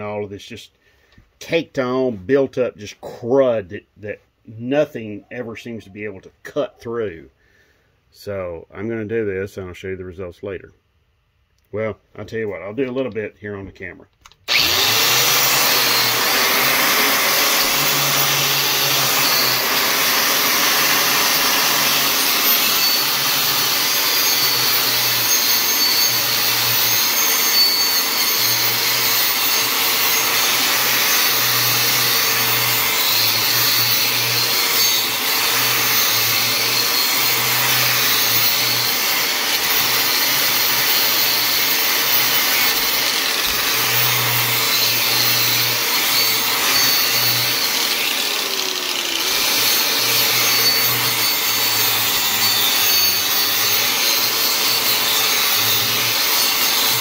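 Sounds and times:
angle grinder with wire wheel: 14.5 - 57.0.

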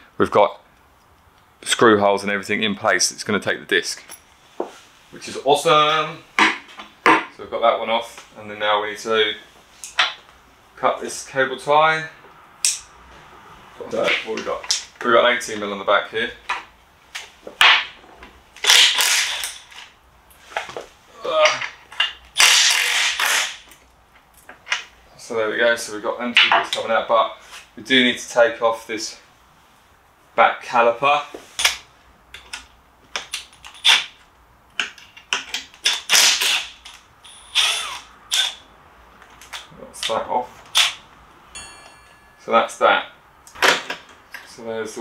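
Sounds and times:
cordless drill whirring: 36.2 - 38.6.

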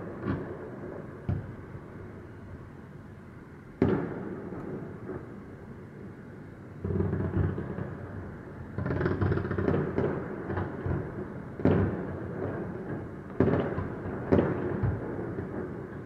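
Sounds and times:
firework bangs: 8.8 - 15.9.

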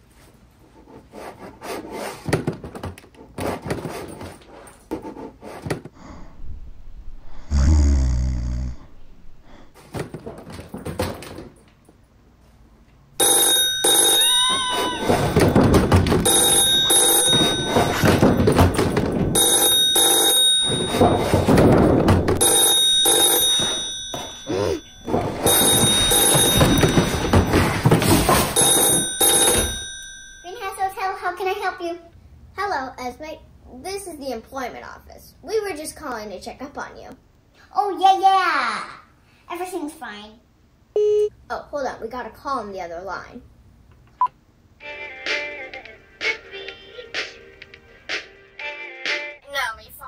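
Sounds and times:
desk telephone ringing: 13.2 - 30.6
suitcase thudding on wooden stairs: 15.1 - 19.7, 20.6 - 24.4, 25.0 - 29.8.

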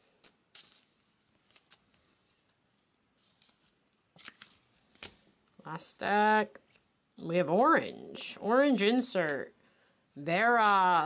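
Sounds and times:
cards rustling and clicking: 0.0 - 5.6
plastic sleeves crinkling: 0.1 - 5.6.

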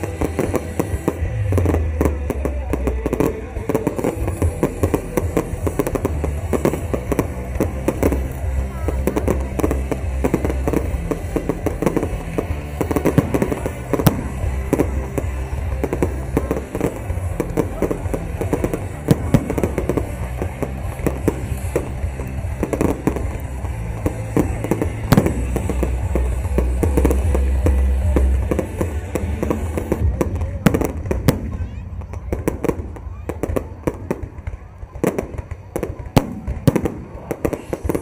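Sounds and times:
firework shells bursting and crackling: 0.0 - 38.0
music playing: 0.0 - 38.0.

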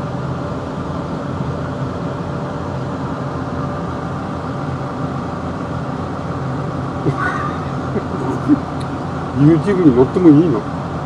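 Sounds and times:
vehicle engine humming: 0.0 - 11.0.

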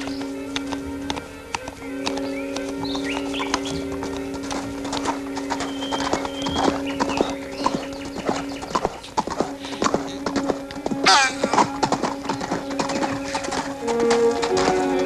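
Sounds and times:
held music chord: 0.0 - 15.0
horse hooves clip-clopping: 0.0 - 15.0
horse whinny: 11.0 - 11.8.

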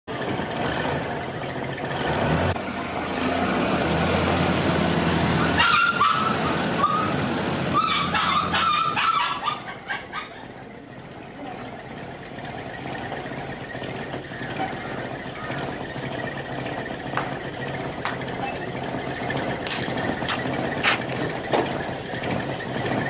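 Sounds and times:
car engine running: 0.1 - 23.0
dog barking: 5.6 - 7.1, 7.8 - 10.5.

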